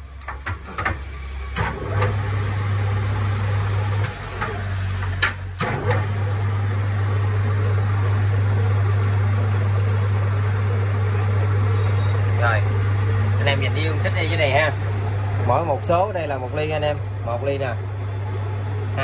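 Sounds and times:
sharp clicks and knocks: 0:00.2 - 0:01.0
lathe humming: 0:01.3 - 0:19.0.

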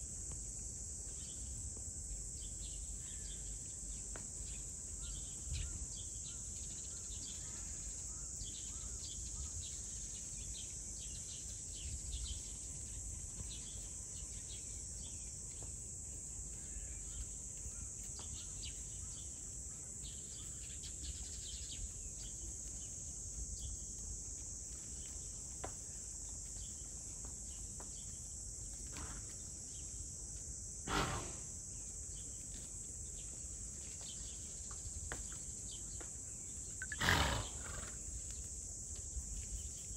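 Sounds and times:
high-pitched insect chorus: 0:00.0 - 0:39.9
short bird chirps: 0:36.8 - 0:37.5.

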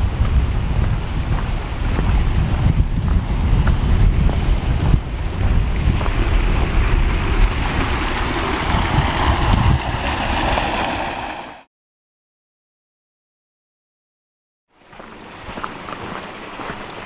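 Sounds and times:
wind buffeting microphone: 0:00.0 - 0:11.4
running water from cascade: 0:14.8 - 0:17.0.

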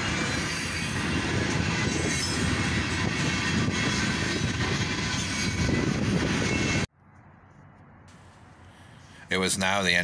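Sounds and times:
freight train wheels rumbling: 0:00.0 - 0:06.9.

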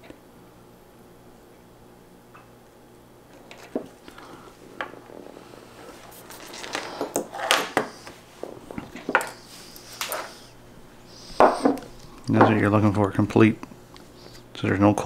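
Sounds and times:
tools clattering on wooden table: 0:06.7 - 0:07.9, 0:11.4 - 0:12.6.

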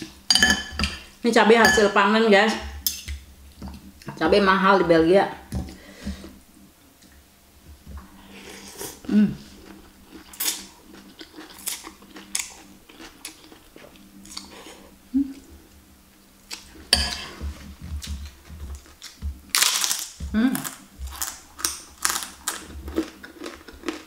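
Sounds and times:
person humming: 0:09.0 - 0:09.6, 0:20.2 - 0:20.8.

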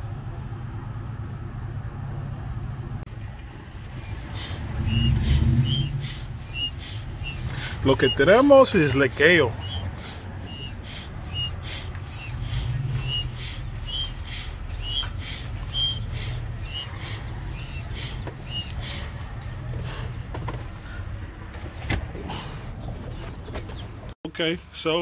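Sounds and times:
smoke machine pumping with squeaks: 0:03.8 - 0:19.2.

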